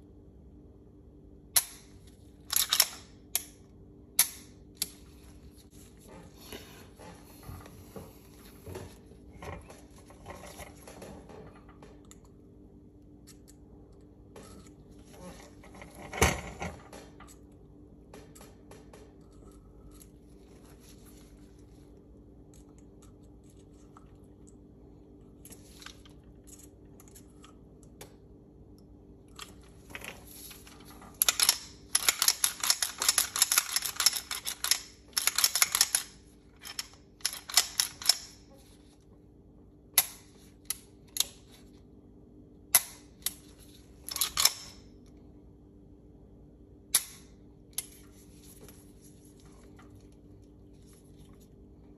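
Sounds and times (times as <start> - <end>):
pistol parts clicking and rattling: 2.5 - 3.6, 31.1 - 38.5, 44.1 - 44.9.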